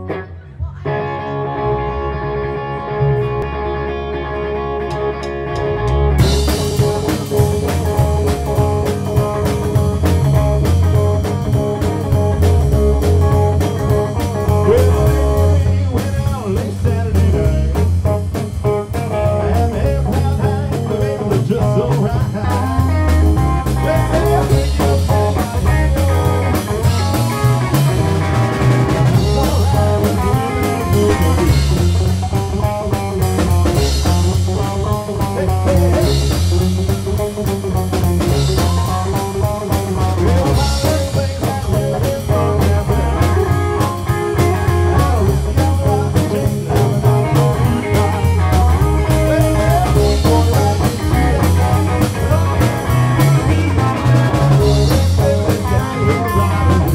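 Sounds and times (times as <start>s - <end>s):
electric guitar sustained notes: 0.0s - 15.8s
drums and bass guitar: 0.0s - 56.9s.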